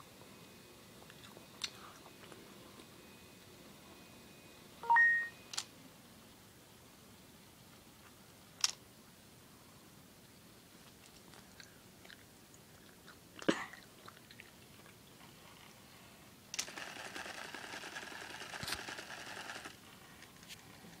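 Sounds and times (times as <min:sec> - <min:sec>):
crackly servo motor whirring: 0:16.6 - 0:19.8.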